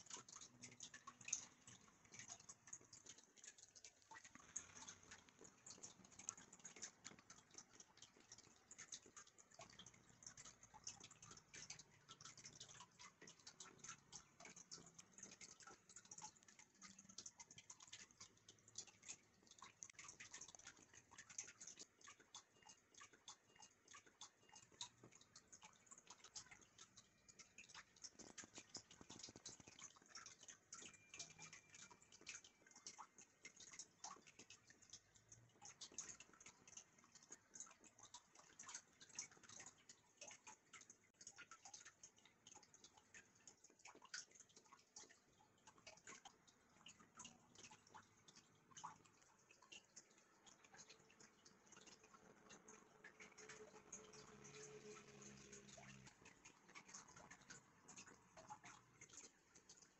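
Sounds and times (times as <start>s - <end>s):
faint ticking clicks: 0.0s - 59.9s.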